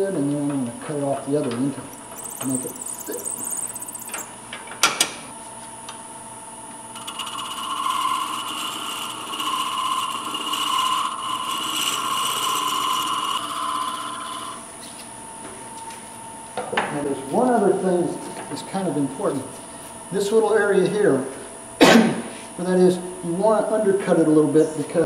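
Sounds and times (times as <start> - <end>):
lathe high whine: 1.8 - 4.4, 6.9 - 15.1
lathe tool scraping wood: 2.0 - 4.2, 7.0 - 14.6.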